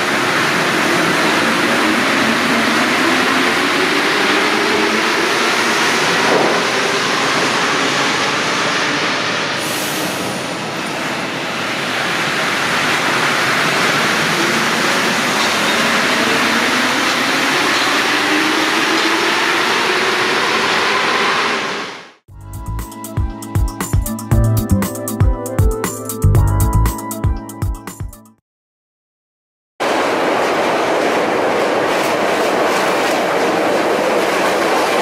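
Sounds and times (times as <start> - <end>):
train rolling noise: 0.0 - 22.1, 29.8 - 35.0.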